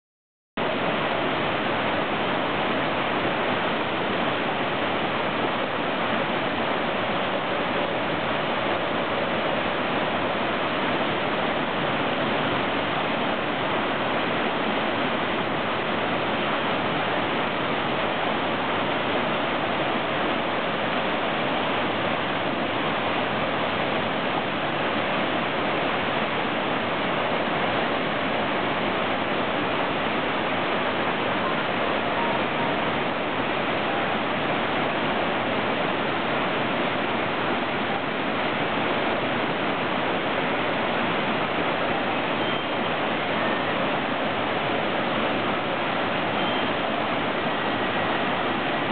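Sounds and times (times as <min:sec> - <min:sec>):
waterfall rushing: 0:00.6 - 0:48.9.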